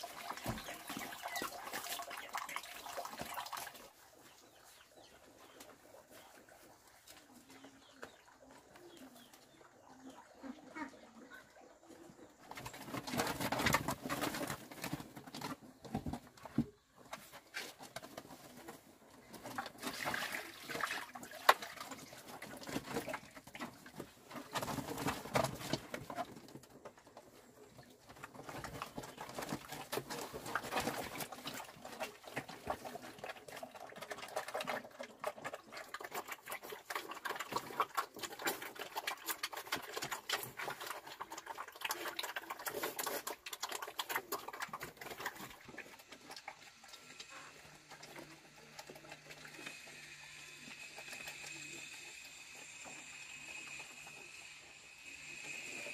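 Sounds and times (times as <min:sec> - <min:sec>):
piglets slurping and chomping: 0:00.0 - 0:04.6, 0:17.4 - 0:55.9.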